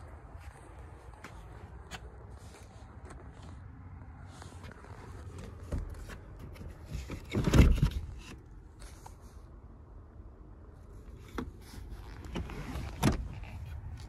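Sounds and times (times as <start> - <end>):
camera scraping against seat: 2.3 - 9.2.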